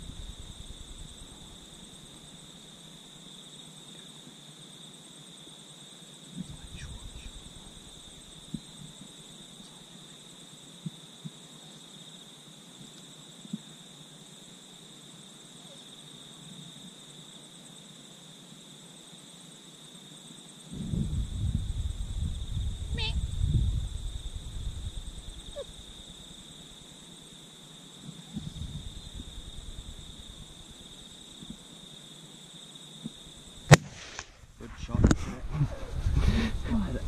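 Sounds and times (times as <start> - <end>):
insects chirring: 0.0 - 37.0
faint ticks: 8.5 - 9.8, 12.8 - 13.7.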